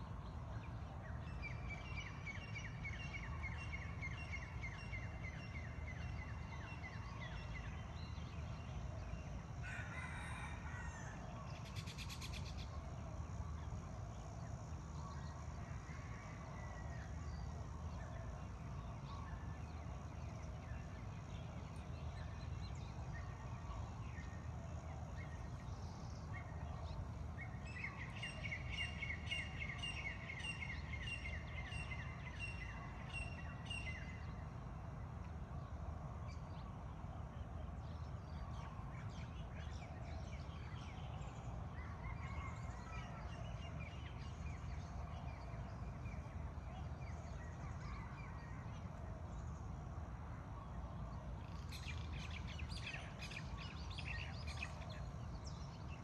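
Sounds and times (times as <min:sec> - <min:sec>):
birds singing: 0:00.0 - 0:56.0
rooster crowing: 0:09.6 - 0:11.3.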